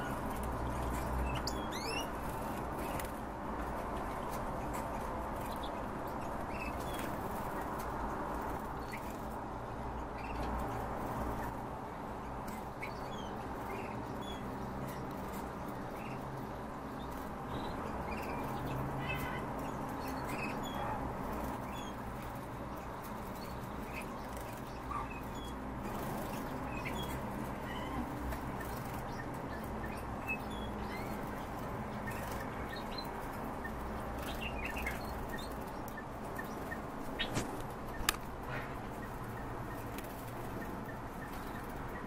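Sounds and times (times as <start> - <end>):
songbirds chirping: 0.0 - 42.0
steady background noise: 0.0 - 42.0.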